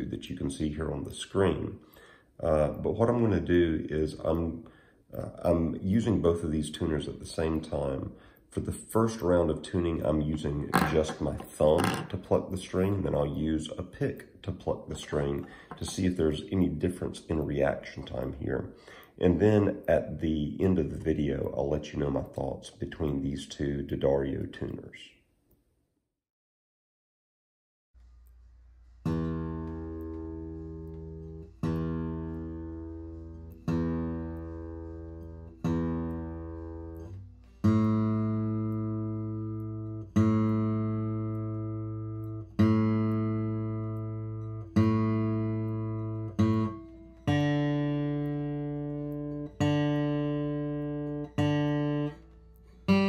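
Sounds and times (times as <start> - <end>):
acoustic guitar strings plucked: 10.3 - 12.5, 14.0 - 16.9, 29.0 - 53.0.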